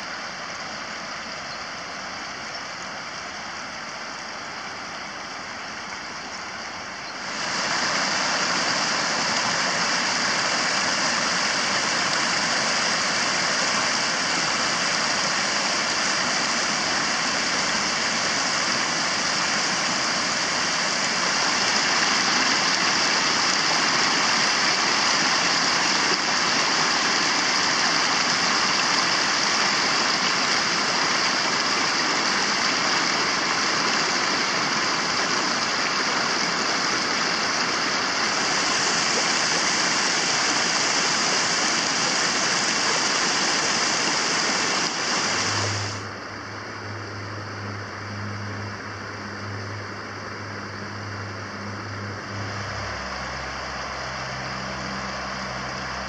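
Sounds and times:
river water rushing over rocks: 0.0s - 46.9s, 50.8s - 56.0s.

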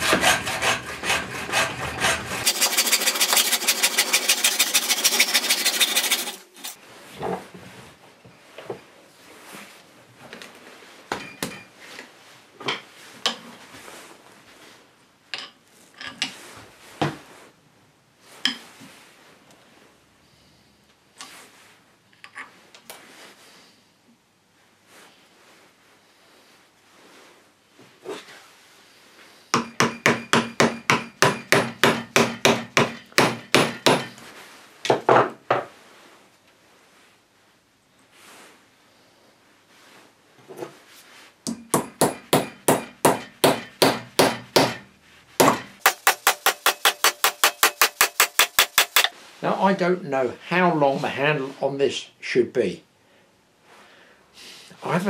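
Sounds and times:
tools and wood knocking on workbench: 11.1s - 11.7s, 29.6s - 34.2s, 34.9s - 35.7s.

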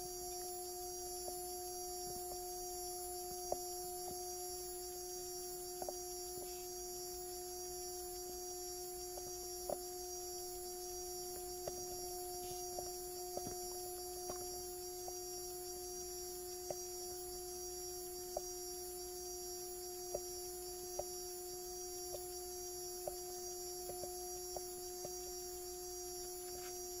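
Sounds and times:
tuning-fork watch humming: 0.0s - 27.0s
faint irregular clicks: 22.0s - 26.8s.

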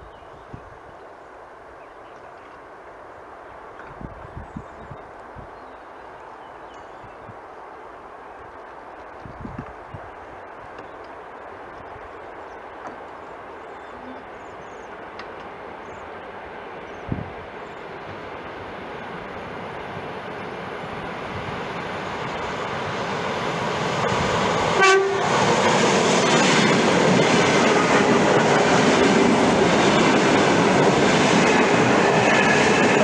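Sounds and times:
wheels rushing on rails: 1.8s - 33.0s
clickety-clack of train cars: 21.7s - 33.0s
train horn blast: 24.8s - 25.4s.

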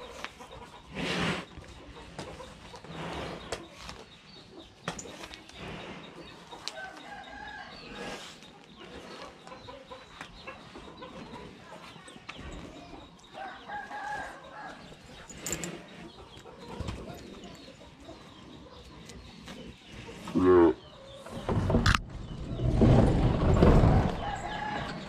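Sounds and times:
chickens clucking: 0.0s - 25.0s
rooster crowing: 24.1s - 25.0s.

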